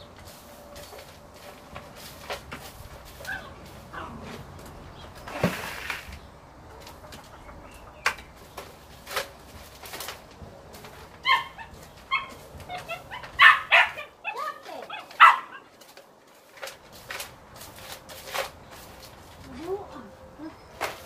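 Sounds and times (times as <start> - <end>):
broom sweeping scrape: 0.0 - 6.2, 14.4 - 21.0
hens clucking: 0.0 - 21.0.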